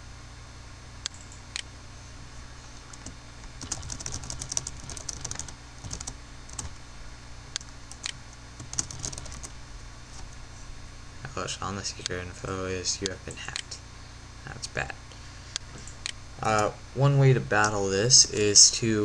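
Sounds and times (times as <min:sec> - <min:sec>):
typing on a keyboard: 0:03.0 - 0:06.7, 0:07.9 - 0:09.5.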